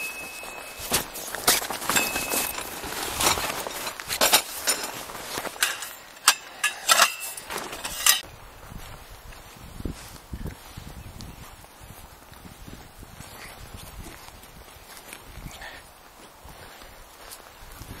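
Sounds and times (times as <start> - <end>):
metallic clinks of camping gear: 0.0 - 8.2.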